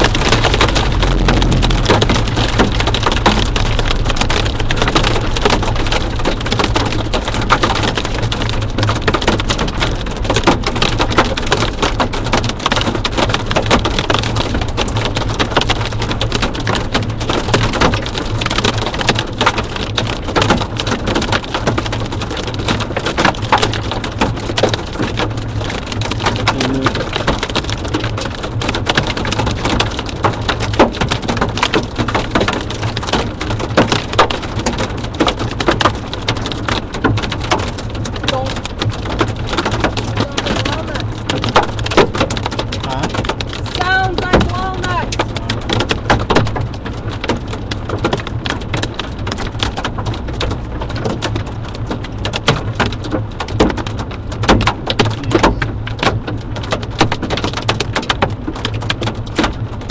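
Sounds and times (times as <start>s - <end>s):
steady low hum: 0.0s - 7.4s
hailstones pelting vehicle roof: 0.0s - 59.9s
heavy rain: 0.0s - 59.9s.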